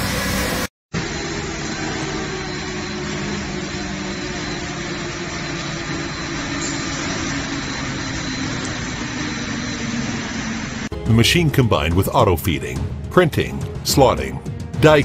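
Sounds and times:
faint high whine: 0.0s - 10.9s
machinery running: 0.0s - 15.0s.

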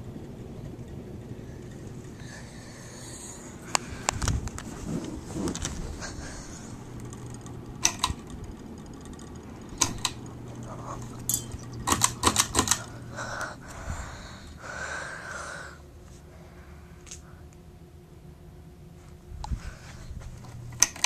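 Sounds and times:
fan motor hum: 0.0s - 21.0s
pull-chain switch clicks: 7.8s - 8.2s, 9.8s - 10.2s, 11.3s - 12.9s.

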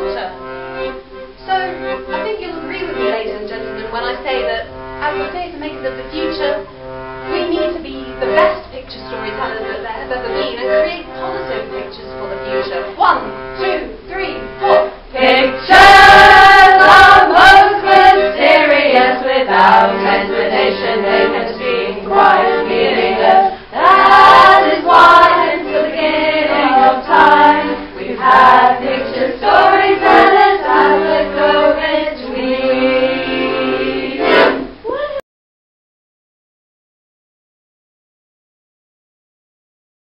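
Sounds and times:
accordion chords: 0.0s - 34.8s
woman singing lead: 7.3s - 35.2s
group singing: 14.6s - 34.8s.

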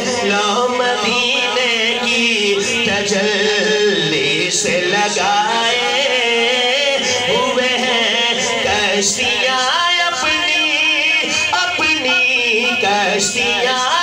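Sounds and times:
man singing through pa: 0.0s - 14.0s.

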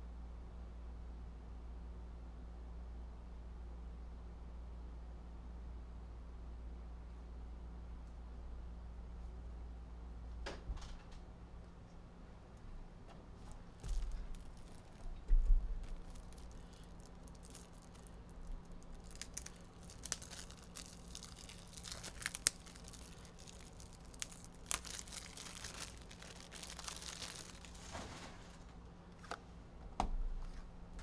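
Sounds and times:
packaging crinkling and tearing: 13.8s - 29.4s.

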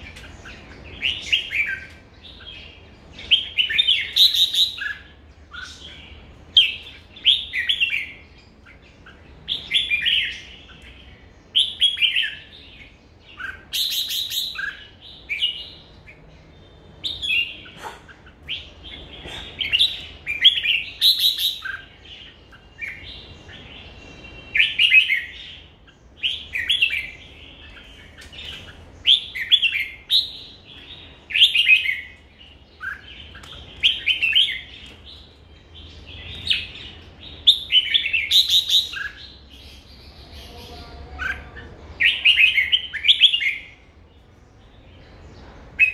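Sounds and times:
bird singing warbled phrases: 0.0s - 45.9s.

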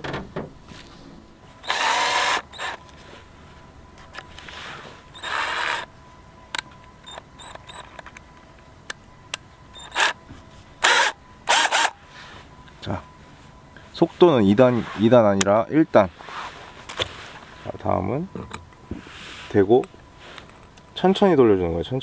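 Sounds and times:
cordless drill motor bursts: 1.6s - 2.8s, 5.1s - 5.9s, 7.1s - 7.8s, 9.8s - 10.2s, 10.8s - 12.0s.

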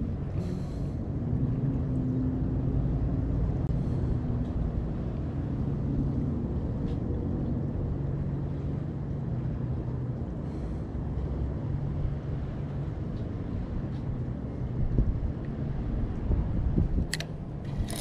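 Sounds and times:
wind buffeting microphone: 14.2s - 18.0s.

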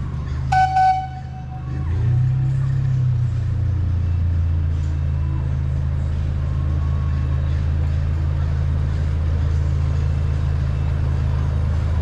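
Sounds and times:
locomotive engine rumble: 0.0s - 12.0s
train whistle blast: 0.5s - 1.4s.

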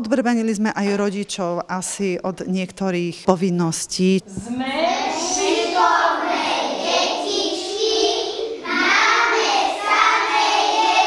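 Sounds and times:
children singing in unison: 4.8s - 11.0s.

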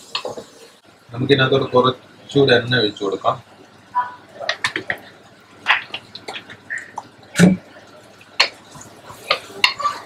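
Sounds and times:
wooden spatula stirring in pot: 7.7s - 10.0s.

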